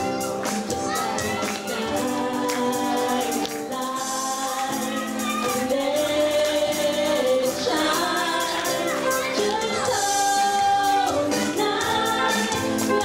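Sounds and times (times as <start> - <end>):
acoustic and electric guitars: 0.0 - 13.0
drums keeping a steady beat: 0.0 - 13.0
women singing: 0.4 - 13.0.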